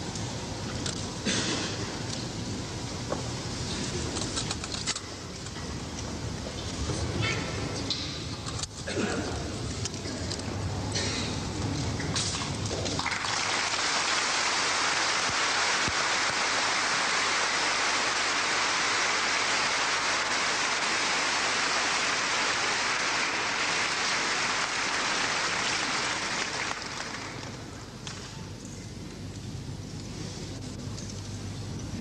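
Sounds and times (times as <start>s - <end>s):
audience applauding: 13.0s - 27.8s.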